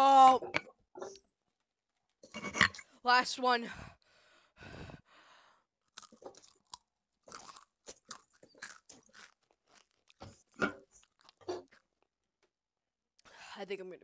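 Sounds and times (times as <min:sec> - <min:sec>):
crunching and chewing snack: 0:05.8 - 0:12.1.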